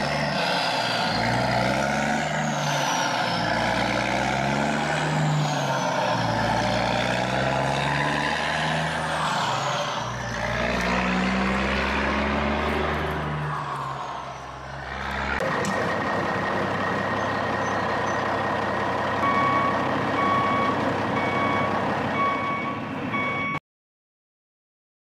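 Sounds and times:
diesel loader engine revving: 0.0 - 23.6
reversing alarm beeping: 19.2 - 23.6.

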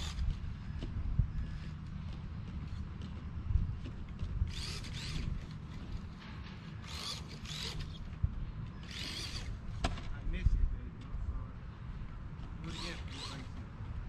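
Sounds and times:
electric rc car motors whining: 0.0 - 1.8, 4.4 - 6.1, 6.7 - 9.8, 12.6 - 13.7.

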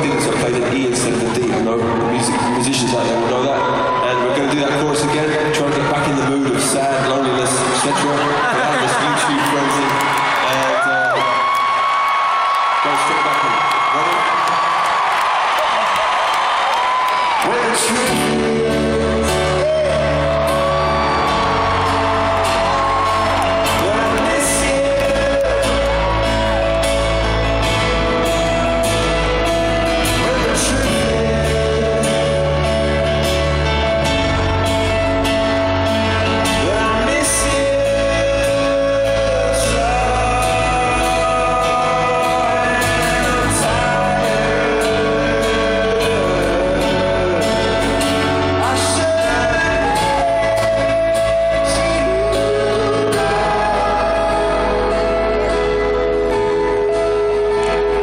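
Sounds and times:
piano and band playing: 0.0 - 58.0
man singing: 17.4 - 58.0.

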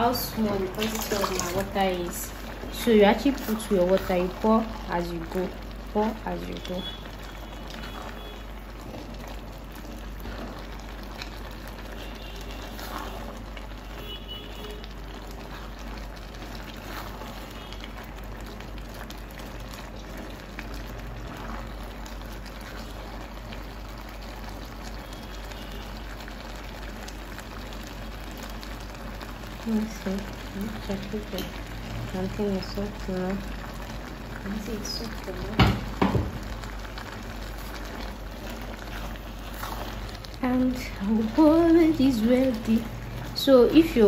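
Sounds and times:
porridge bubbling in a pot: 0.0 - 44.0
spatula stirring: 0.2 - 4.3, 7.2 - 14.0, 14.8 - 19.1, 36.8 - 44.0.

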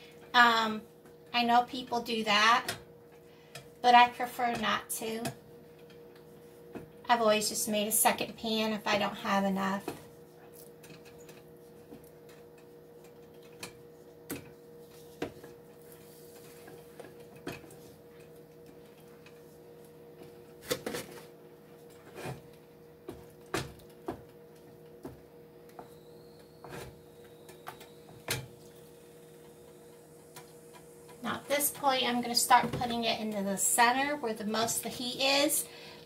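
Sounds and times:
faint steady hum: 0.0 - 36.0.

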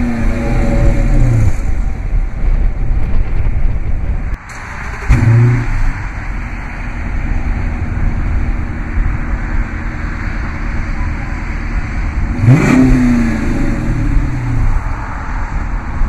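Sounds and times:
engine revving: 0.0 - 2.0, 4.5 - 6.2, 9.0 - 15.3
car engine idling: 0.0 - 16.0.

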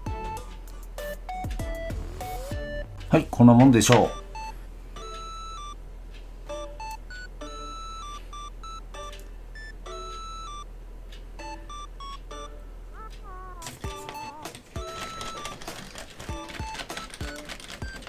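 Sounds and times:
electronic melody of beep-like synth notes: 0.0 - 3.0, 3.9 - 5.8, 6.5 - 10.7, 11.4 - 15.7.

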